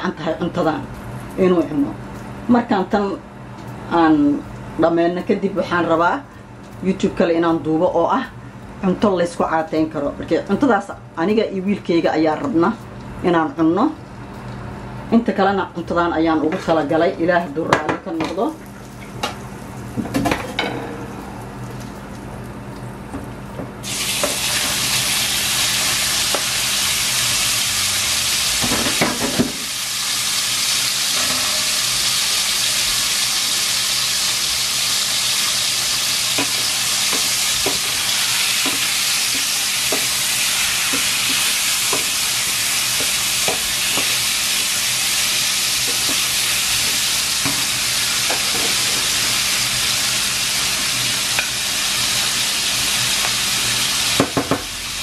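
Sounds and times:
chicken sizzling in hot oil: 23.8s - 55.0s.

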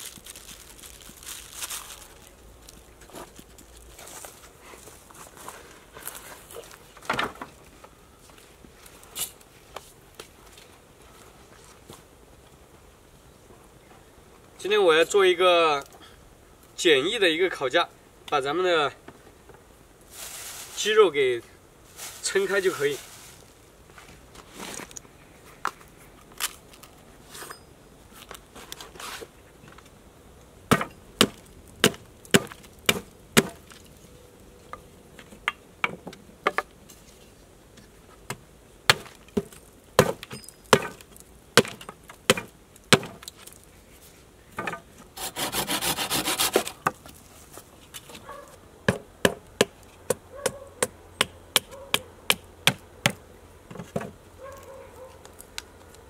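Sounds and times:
knife cutting wooden sticks: 45.2s - 46.9s.

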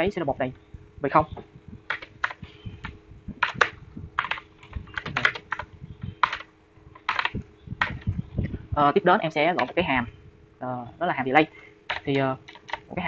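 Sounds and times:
typing on computer keyboard: 1.9s - 8.1s, 11.9s - 12.9s.

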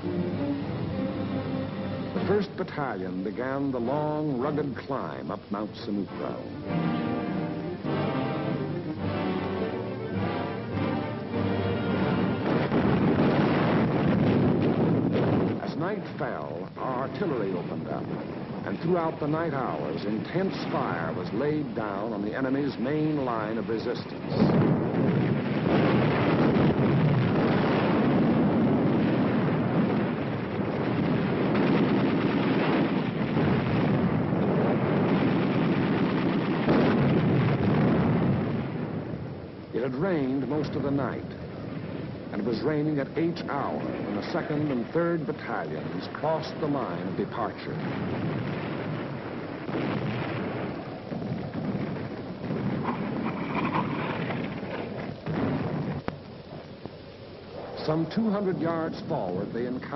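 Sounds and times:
low rumble and rushing noise: 0.0s - 59.9s
artillery guns firing: 35.6s - 38.2s.

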